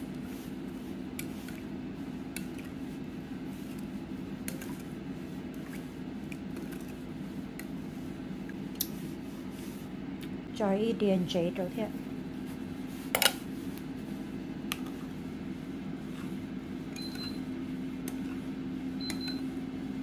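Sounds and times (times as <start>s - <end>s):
spoon stirring liquid in bowl: 4.4s - 7.0s.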